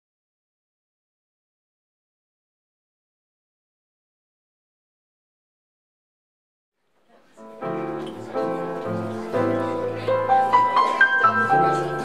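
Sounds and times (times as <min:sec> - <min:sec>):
jazz trio playing: 0:07.6 - 0:12.0.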